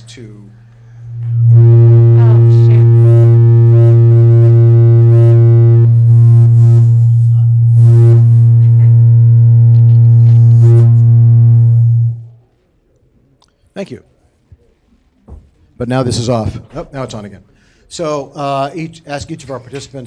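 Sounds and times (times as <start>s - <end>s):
electrical buzz: 0.8s - 12.5s.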